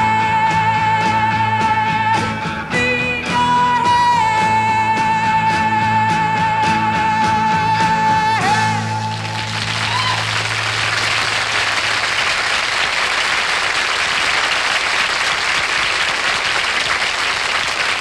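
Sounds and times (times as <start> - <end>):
audience applauding: 9.0 - 18.0.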